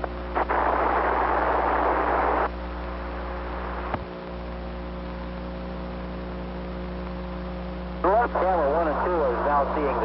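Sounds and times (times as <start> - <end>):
two-way radio hiss: 0.0 - 4.0, 8.0 - 10.0
steady electrical hum: 0.0 - 10.0.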